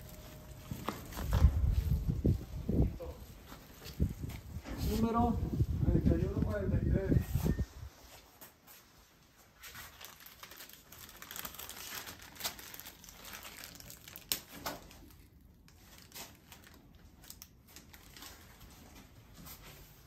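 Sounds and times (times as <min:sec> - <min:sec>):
plastic packaging crinkling: 0:09.6 - 0:19.1.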